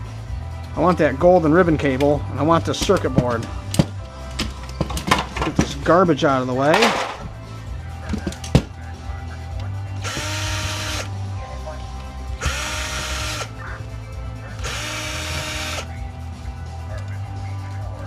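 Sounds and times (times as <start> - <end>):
cordless drill motor whine: 10.0 - 11.1, 12.4 - 13.5, 14.6 - 15.9.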